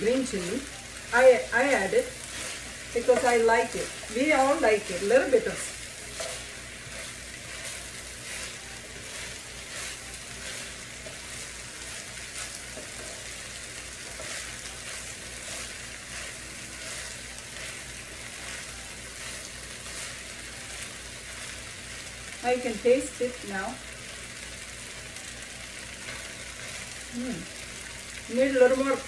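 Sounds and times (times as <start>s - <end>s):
fried rice sizzling in a skillet: 0.0s - 29.0s
spatula scraping a pan: 1.4s - 20.6s.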